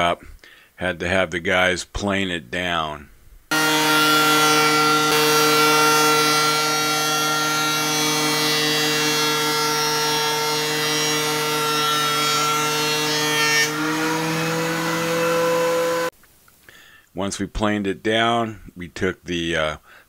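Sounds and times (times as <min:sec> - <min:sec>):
thickness planer whining: 0:03.5 - 0:16.1.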